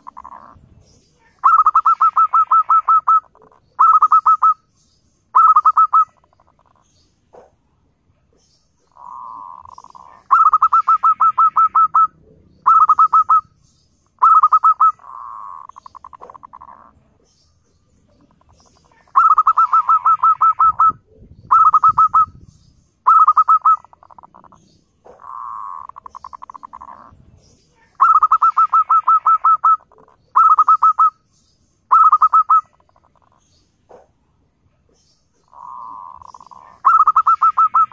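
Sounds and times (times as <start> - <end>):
dove purring trill: 0.0 - 0.6, 1.2 - 4.6, 5.3 - 6.8, 8.9 - 13.6, 14.2 - 17.0, 18.1 - 27.2, 27.8 - 31.2, 31.9 - 34.1, 35.4 - 37.9.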